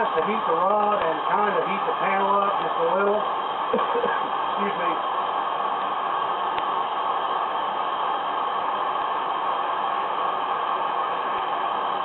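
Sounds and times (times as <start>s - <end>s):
gas torch hissing: 0.0s - 12.0s.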